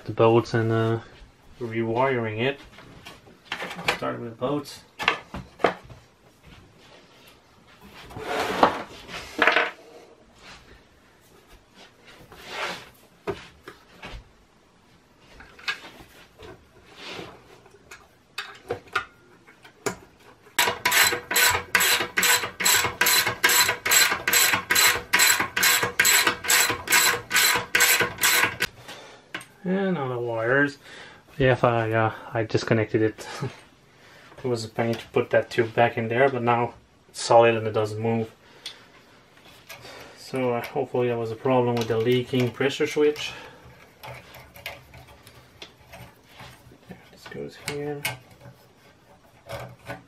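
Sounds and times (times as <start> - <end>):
metal parts knocking and rubbing: 17.9 - 28.7, 41.8 - 50.0
ratchet wrench clicking: 20.6 - 28.7.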